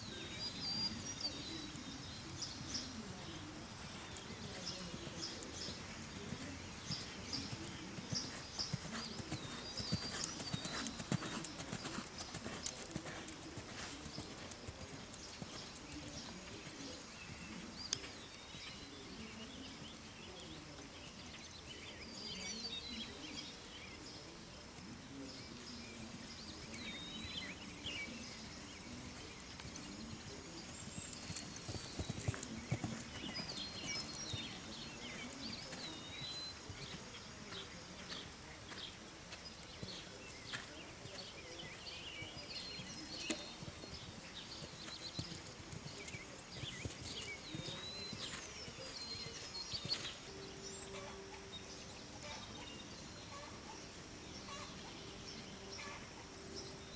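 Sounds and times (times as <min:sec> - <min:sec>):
hoofbeats on sand: 0:03.6 - 0:18.7, 0:29.2 - 0:41.4, 0:42.4 - 0:51.1.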